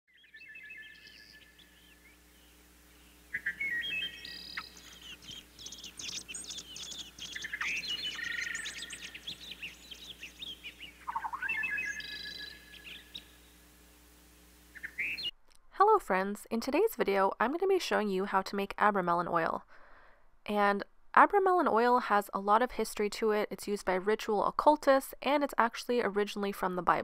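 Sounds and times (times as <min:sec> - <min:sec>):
birds chirping and singing: 0:00.1 - 0:13.5, 0:14.8 - 0:15.3.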